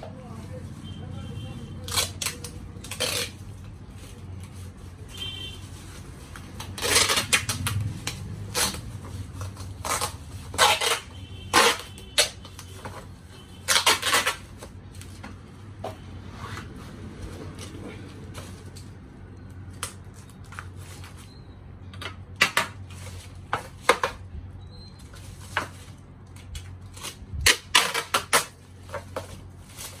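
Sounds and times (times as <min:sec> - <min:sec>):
packing tape ripping off roll: 0:01.8 - 0:03.7, 0:06.3 - 0:12.8, 0:13.6 - 0:15.1, 0:25.3 - 0:30.0.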